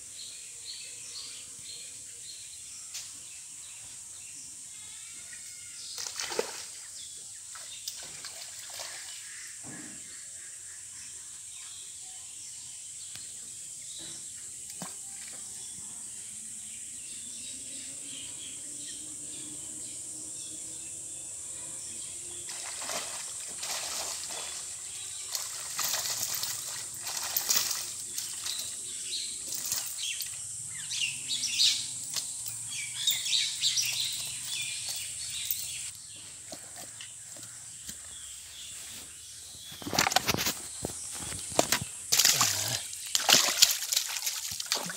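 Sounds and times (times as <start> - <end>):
water splashing from net: 6.0 - 6.8, 22.5 - 28.7, 42.1 - 44.9
fish flapping in wet net: 43.1 - 44.9.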